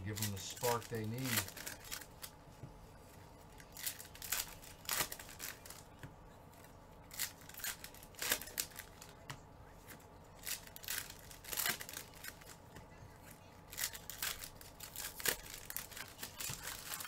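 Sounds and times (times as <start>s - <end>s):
foil wrappers tearing and crinkling: 0.0s - 2.3s, 3.6s - 5.9s, 7.1s - 9.2s, 10.4s - 12.6s, 13.3s - 17.0s.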